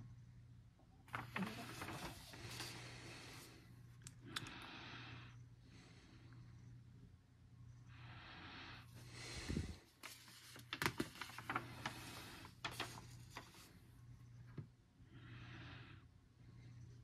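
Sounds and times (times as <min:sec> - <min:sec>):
paper page turning: 0:01.1 - 0:03.4, 0:10.0 - 0:13.7
paper crackling and rustling: 0:01.1 - 0:03.5, 0:10.0 - 0:13.8
soft breaths: 0:01.1 - 0:07.1, 0:07.7 - 0:17.0.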